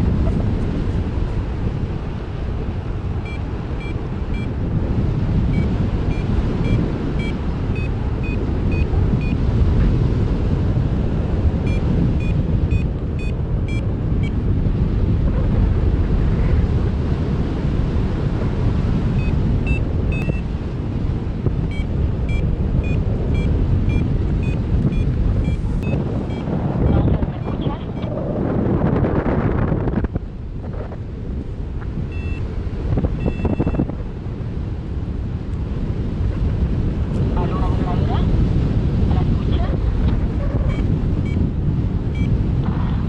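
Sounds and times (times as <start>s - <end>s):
wind buffeting microphone: 0.0s - 43.0s
short high beeps: 5.5s - 9.4s, 11.7s - 13.8s, 19.2s - 20.4s, 21.7s - 28.1s, 32.1s - 32.4s, 33.2s - 33.9s, 40.7s - 41.4s.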